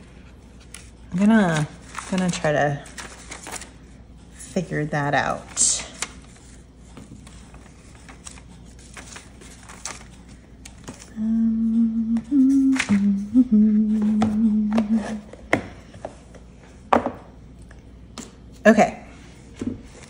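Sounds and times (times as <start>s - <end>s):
person humming a tune: 11.1s - 15.4s.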